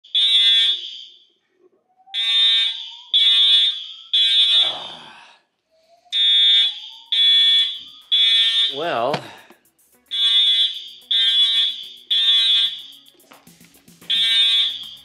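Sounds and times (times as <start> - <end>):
fire alarm beeps: 0.0 - 1.4, 2.0 - 4.8, 5.8 - 9.5, 10.1 - 13.2, 14.1 - 15.0.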